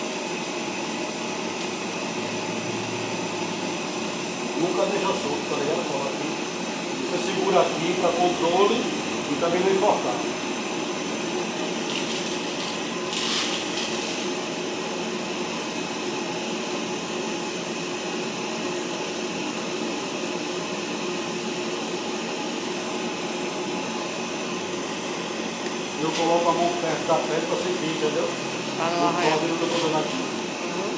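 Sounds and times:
grooming dryer blowing air: 0.0s - 30.9s.

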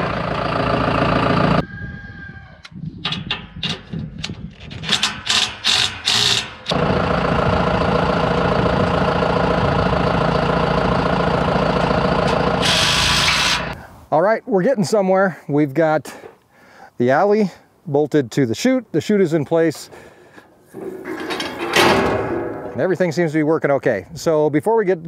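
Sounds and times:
tractor engine running: 0.0s - 1.6s, 5.0s - 13.8s, 20.5s - 23.3s.

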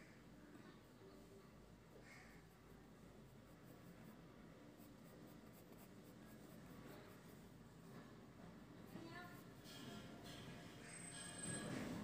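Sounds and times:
pencil scratching on paper: 2.5s - 7.8s.

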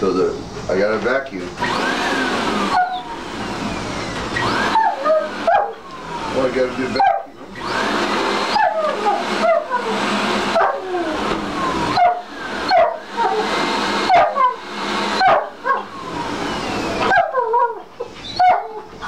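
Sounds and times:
vacuum cleaner motor: 0.0s - 19.0s
dog whining and yipping: 2.6s - 3.2s, 3.9s - 5.8s, 6.9s - 7.7s, 8.4s - 19.0s.

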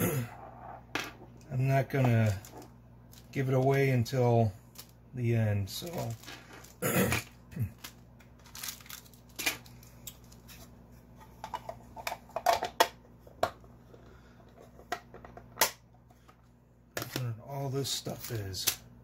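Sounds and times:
plastic bags crinkling: 5.8s - 6.8s, 7.6s - 10.6s.

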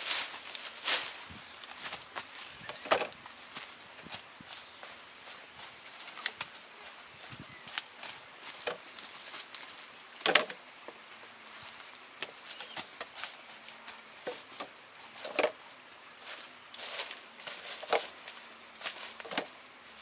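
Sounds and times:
bamboo poles knocking: 2.7s - 3.2s, 8.6s - 8.8s, 10.2s - 10.6s, 14.2s - 15.6s, 17.7s - 18.1s.

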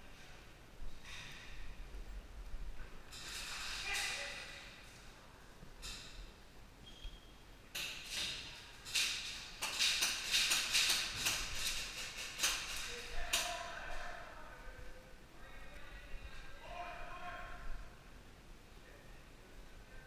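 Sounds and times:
pellets hitting plywood walls: 7.9s - 13.6s.

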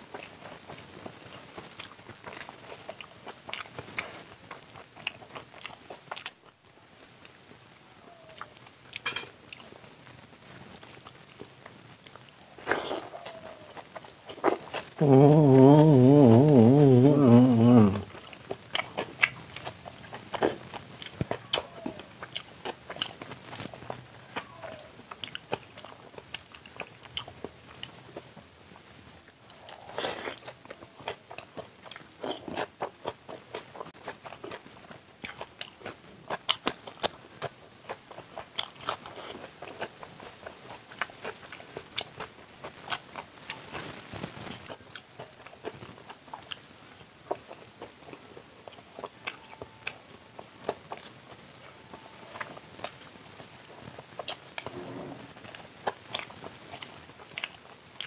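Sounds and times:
man chewing food: 0.0s - 7.5s, 8.1s - 58.0s
crunches while eating: 8.0s - 28.3s.

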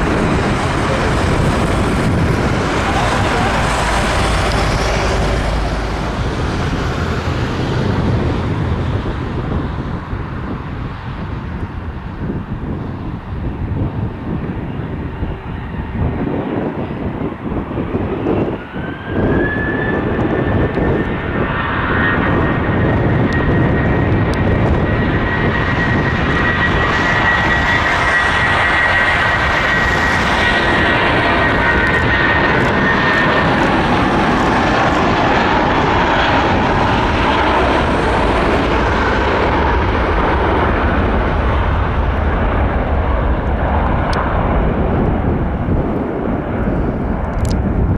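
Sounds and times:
high fan whine: 0.0s - 21.0s
jet engines roaring at takeoff: 0.0s - 47.9s.

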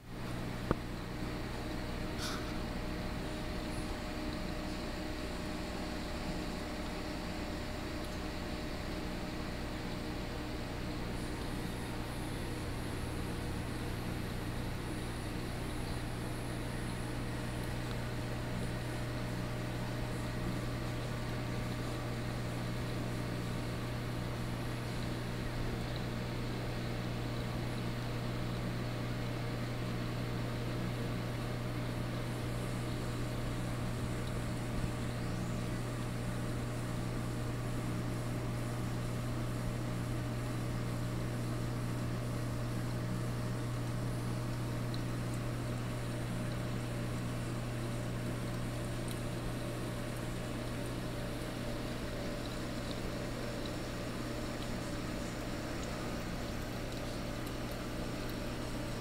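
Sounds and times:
aquarium pump hum: 0.0s - 59.0s
circulating water hiss: 0.0s - 59.0s.

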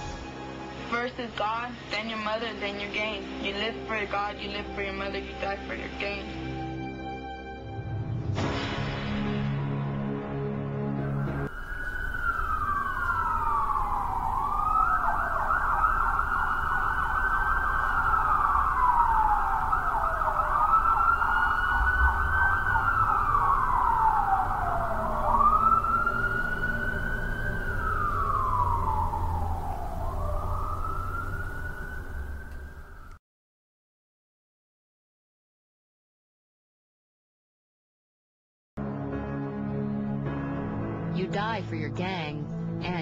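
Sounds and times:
wailing emergency siren: 10.6s - 33.2s.

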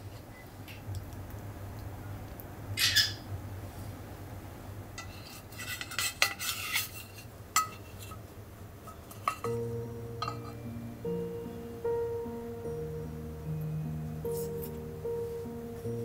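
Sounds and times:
utensils clinking and scraping: 5.0s - 8.2s, 8.9s - 10.6s
soft background music: 8.9s - 16.0s.

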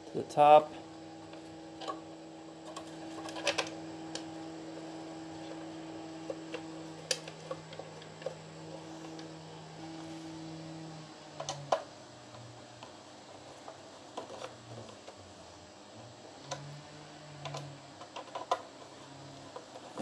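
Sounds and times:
steady low hum: 0.0s - 20.0s
light clicks and knocks of parts: 17.4s - 20.0s.

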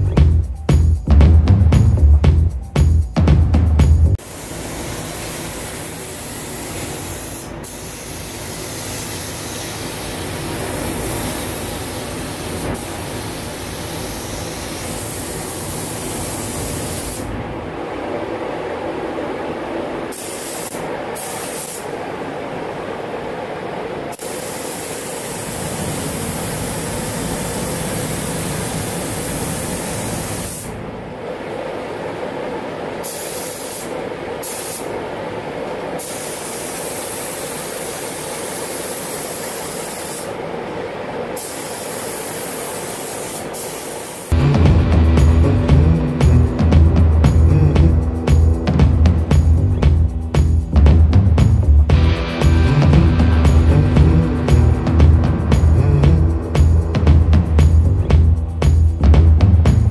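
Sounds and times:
spray gun hissing: 4.2s - 17.4s, 20.1s - 22.0s, 24.1s - 30.8s, 33.0s - 35.0s, 36.0s - 40.5s, 41.3s - 48.7s
low hum: 16.4s - 20.1s, 44.3s - 59.9s.

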